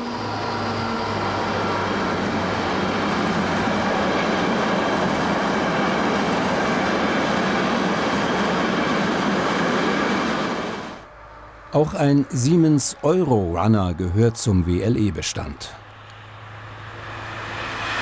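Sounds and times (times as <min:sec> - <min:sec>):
train wheels rushing on rail: 0:00.0 - 0:11.1, 0:15.8 - 0:18.0
diesel locomotive hum: 0:00.0 - 0:18.0.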